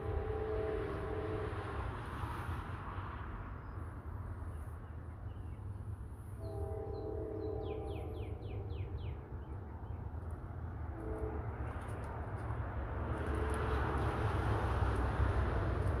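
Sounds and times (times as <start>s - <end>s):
locomotive air horn blast: 0.0s - 2.4s, 6.4s - 8.9s, 10.9s - 11.9s
diesel locomotive rumble: 0.0s - 16.0s.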